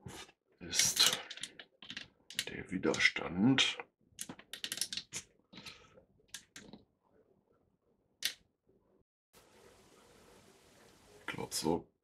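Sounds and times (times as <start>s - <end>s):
small objects clicking: 0.8s - 3.0s, 4.2s - 5.7s.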